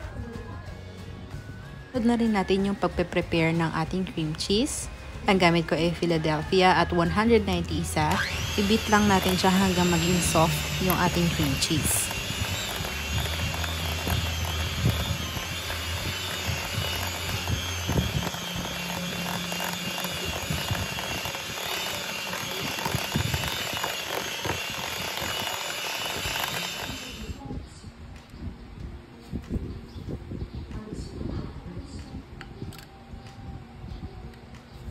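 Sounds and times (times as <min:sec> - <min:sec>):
electric hand mixer whining: 0:02.2 - 0:27.4.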